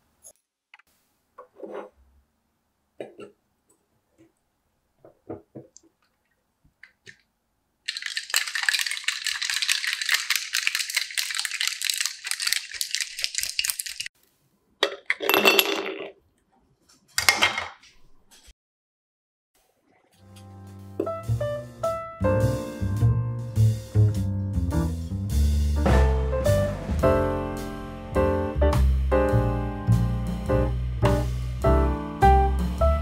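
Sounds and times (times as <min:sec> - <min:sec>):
ice rattling in cocktail shaker: 0:07.9 - 0:14.1
metal clinks of shaker cap: 0:07.9 - 0:14.1.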